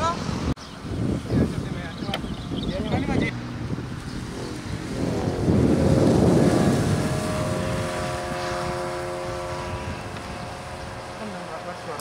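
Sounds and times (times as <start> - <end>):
wind on microphone: 0.0 - 12.0
droning hum of several tones: 3.5 - 12.0.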